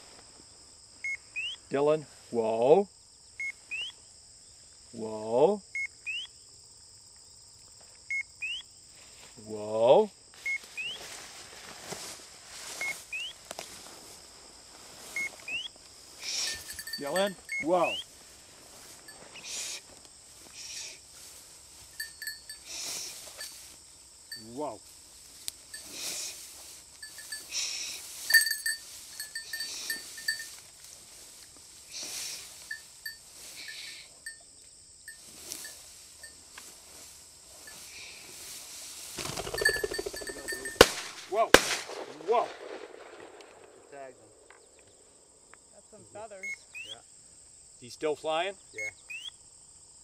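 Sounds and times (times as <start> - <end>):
high buzz of insects: 0.0 - 41.5, 43.6 - 50.0
two-part chirp: 3.4 - 4.0, 5.8 - 6.3, 16.6 - 18.0, 46.4 - 47.0, 48.8 - 49.4
footsteps through dry grass: 10.3 - 34.4, 35.1 - 41.3
light metallic clinks: 16.3 - 17.9, 21.9 - 24.6, 25.4 - 26.3, 26.9 - 30.8, 32.6 - 36.7, 39.3 - 41.1
light rustles: 18.2 - 23.8.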